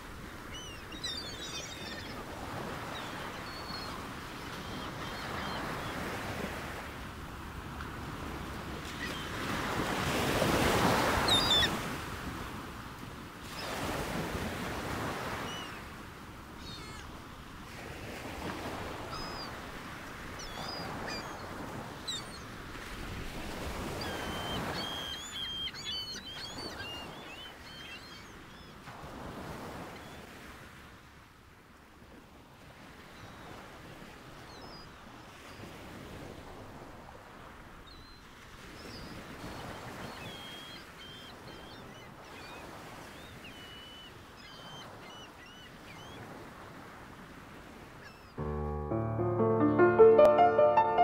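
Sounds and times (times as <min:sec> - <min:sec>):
sea waves washing in: 0:45.7 - 0:51.0.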